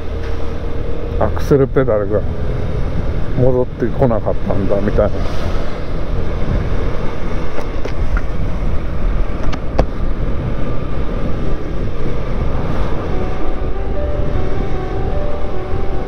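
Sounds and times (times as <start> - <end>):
road rumble: 0.0 - 16.0
wind rushing over camera: 5.0 - 13.2.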